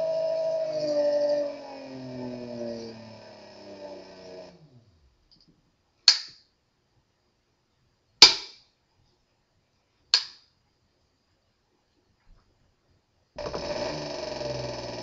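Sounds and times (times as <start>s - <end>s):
electric motor whine: 0.0s - 4.9s, 13.4s - 15.0s.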